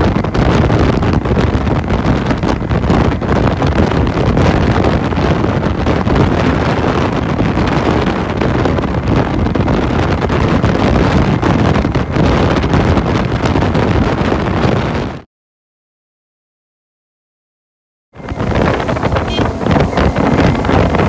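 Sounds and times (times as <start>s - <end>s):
road noise: 0.0s - 15.1s, 18.2s - 21.0s
wind buffeting microphone: 0.0s - 15.3s, 18.2s - 21.0s
motorcycle engine: 18.2s - 21.0s.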